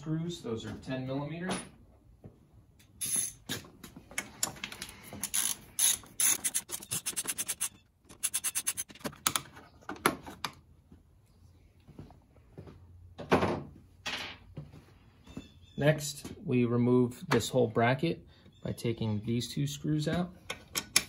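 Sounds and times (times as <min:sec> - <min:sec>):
ratchet wrench clicking: 0:03.0 - 0:03.4, 0:05.2 - 0:08.9.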